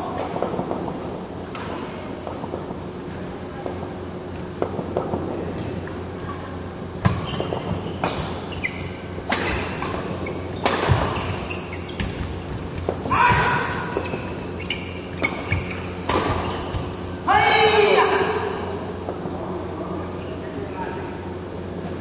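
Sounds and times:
shoes squeaking on court: 5.5 - 17.2
racket hitting shuttlecock: 9.2 - 11.4, 15.2 - 17.0.

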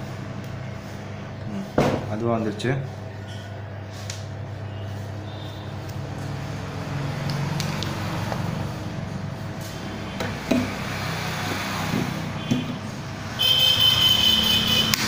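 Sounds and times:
hot-air blower humming: 3.8 - 15.0
loud high-pitched whine: 4.6 - 15.0
tools knocking on bench: 10.2 - 10.7.

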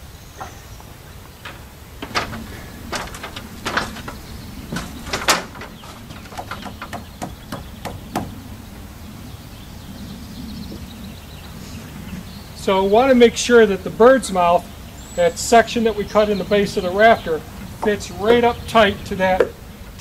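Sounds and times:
wooden knocks and bumps: 0.4 - 8.5, 17.8 - 18.6.

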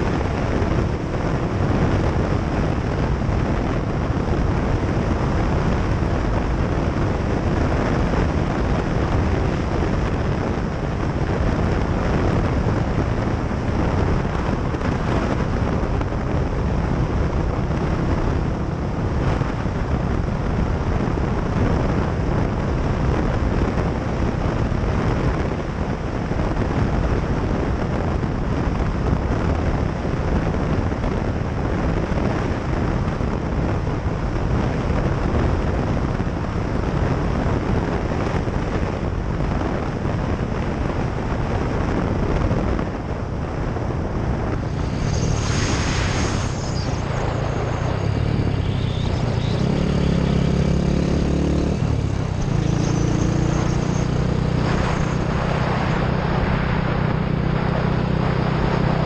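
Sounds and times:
road noise: 0.0 - 59.0
wind rushing over microphone: 0.0 - 59.0
motorcycle engine: 43.0 - 56.2.

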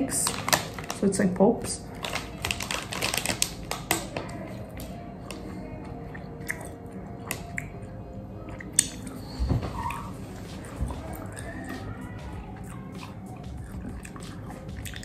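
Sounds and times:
soft background music: 0.0 - 15.0
person chewing gummy candies: 1.8 - 15.0
wet mouth clicks: 6.4 - 7.8, 8.5 - 9.2.

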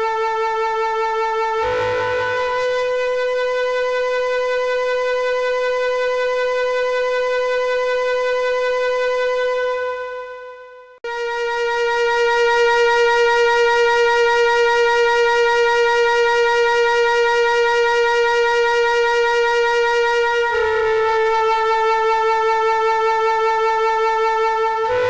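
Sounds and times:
flute-like held note: 1.1 - 14.0, 19.3 - 25.0.

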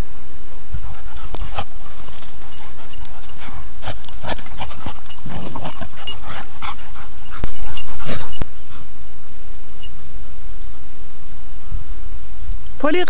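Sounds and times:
dog panting: 0.8 - 8.9
high squeaky sounds: 2.5 - 8.4.

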